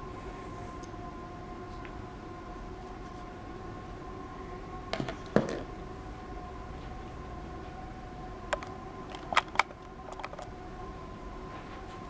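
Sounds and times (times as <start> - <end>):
steady low hum: 0.0 - 12.0
plastic cover clicks and clacks: 8.6 - 10.5.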